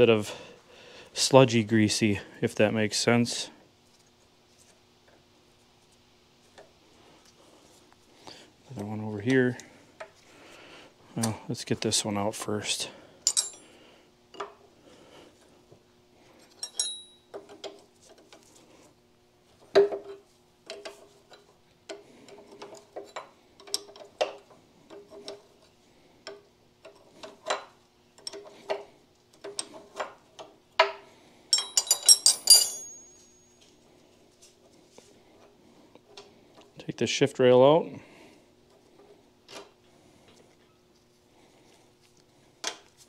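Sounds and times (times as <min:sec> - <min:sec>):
faint steady hum: 0:00.0 - 0:43.0
ringing metal clinks: 0:13.3 - 0:13.6, 0:16.6 - 0:17.3, 0:31.5 - 0:33.7.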